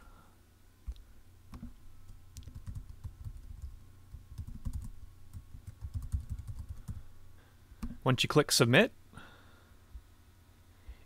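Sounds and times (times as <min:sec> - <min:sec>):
typing on computer keyboard: 0:02.4 - 0:07.0.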